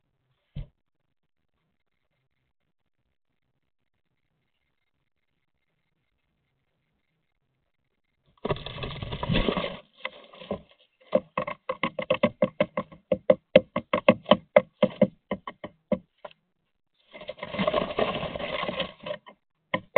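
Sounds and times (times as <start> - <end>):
bird wings scrabbling in nest box: 8.4 - 13.2, 17.0 - 19.9
sharp taps and clicks: 11.1 - 16.4.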